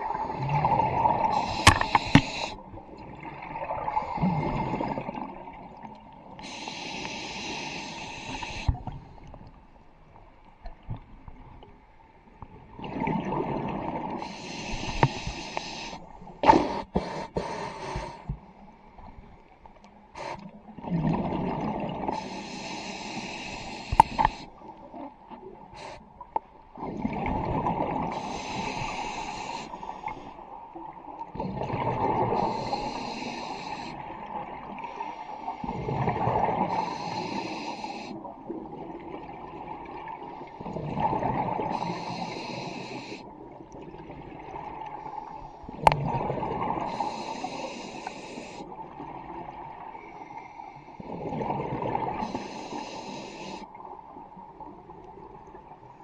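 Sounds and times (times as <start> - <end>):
scuba regulator breathing hiss: 1.2 - 2.6, 6.4 - 8.8, 14.2 - 18.3, 20.2 - 20.4, 22.1 - 24.6, 25.8 - 26.1, 28.1 - 30.4, 32.3 - 34.1, 36.6 - 38.2, 41.7 - 43.3, 46.8 - 48.8, 52.2 - 53.7.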